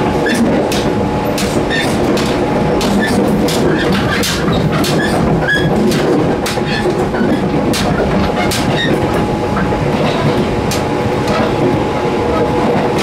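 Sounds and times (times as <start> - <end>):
electric train rumbling: 0.0 - 13.0
metal plates clinking and squeaking: 1.7 - 9.0.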